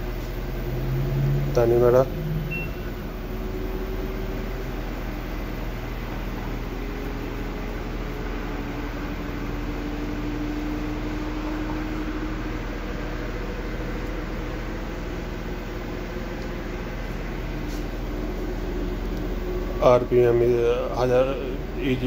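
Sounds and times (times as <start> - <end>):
washing machine motor hum: 0.0 - 22.0
control panel beep: 2.5 - 2.9.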